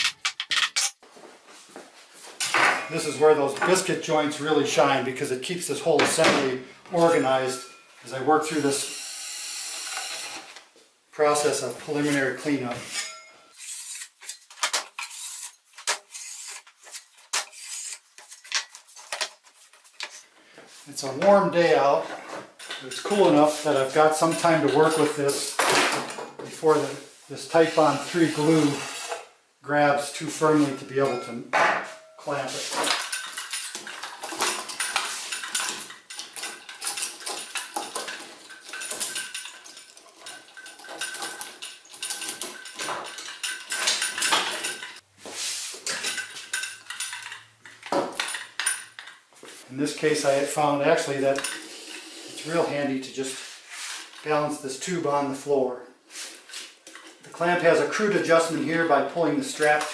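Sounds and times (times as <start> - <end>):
metal clamp clinking: 0.0 - 1.0
putty knife scraping wood: 13.6 - 20.3.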